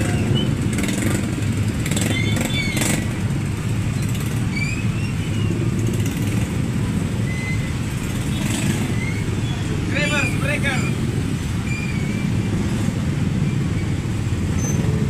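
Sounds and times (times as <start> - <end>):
motorcycle engine running: 0.0 - 4.6
road noise: 0.0 - 15.0.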